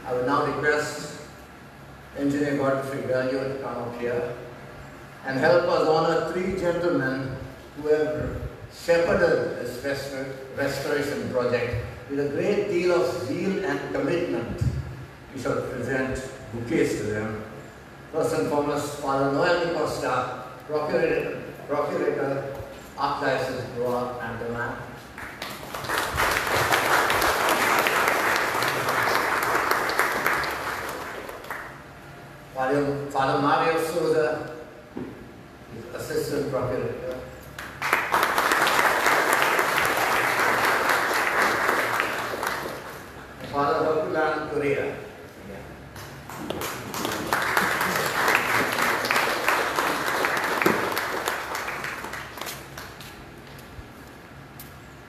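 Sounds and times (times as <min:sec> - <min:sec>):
audience clapping: 0:25.2 - 0:31.8, 0:37.6 - 0:43.2, 0:46.0 - 0:53.2.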